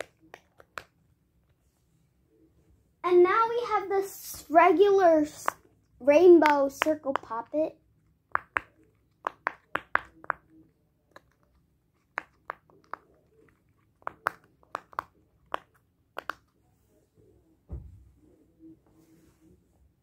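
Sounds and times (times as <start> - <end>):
fidget toy bubbles popping: 8.2 - 11.4, 12.0 - 13.3, 14.0 - 16.5
dull thump: 17.7 - 18.0.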